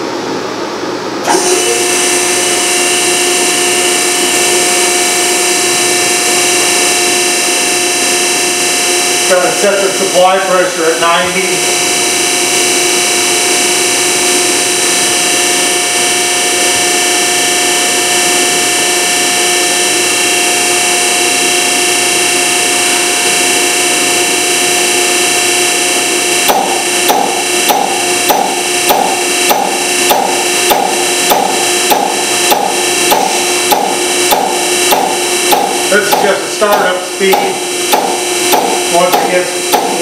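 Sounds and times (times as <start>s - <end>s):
test bench whine and hiss: 0.0s - 40.0s
injector knocking: 19.2s - 40.0s.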